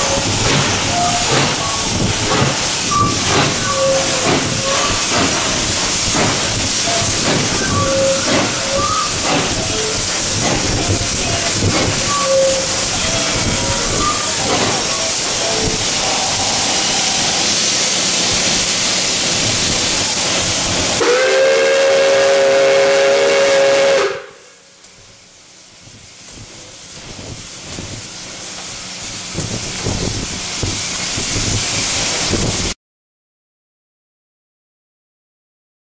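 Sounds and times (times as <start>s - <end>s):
steam hissing: 0.0s - 32.8s
steam whistle chord: 21.0s - 24.8s.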